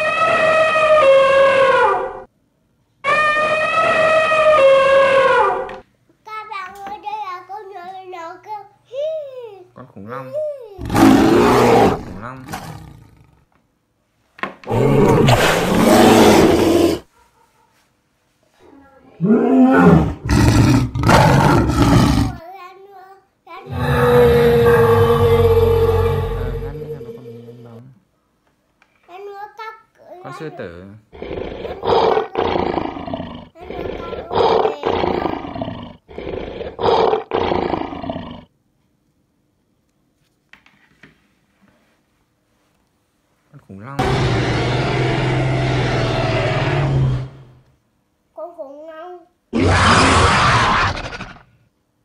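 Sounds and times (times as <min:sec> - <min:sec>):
animal roaring: 0:10.8 - 0:13.4, 0:14.7 - 0:17.1, 0:19.2 - 0:22.4, 0:23.7 - 0:27.9, 0:31.2 - 0:38.5, 0:44.0 - 0:47.6, 0:49.6 - 0:51.5.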